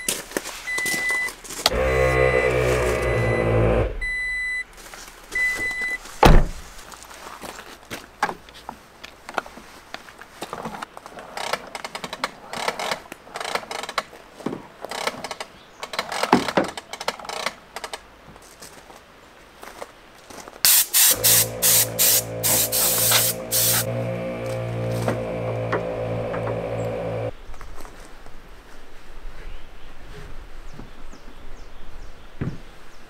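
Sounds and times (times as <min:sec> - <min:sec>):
air compressor humming: 0:01.7 - 0:04.0, 0:20.7 - 0:27.3
air hose clicks and rustles: 0:20.6 - 0:25.8
compressed air hissing blasts: 0:20.7 - 0:24.0.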